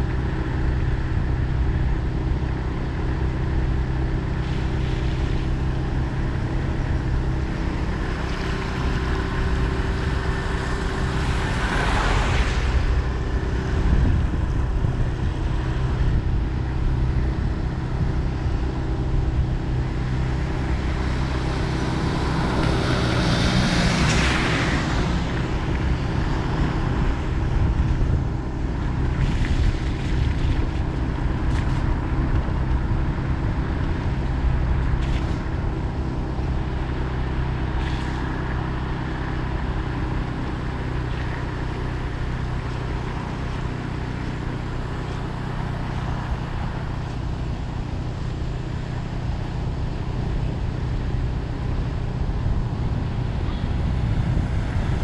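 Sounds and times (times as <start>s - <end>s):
vehicle engine and road noise: 0.0s - 55.0s
broad rushing sound: 4.3s - 38.4s.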